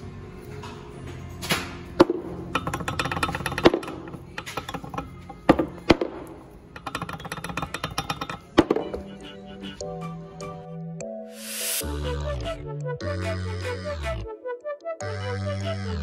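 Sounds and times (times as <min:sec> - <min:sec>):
background music: 0:00.0 - 0:16.0
metallic clacks of connecting rods: 0:02.5 - 0:09.1.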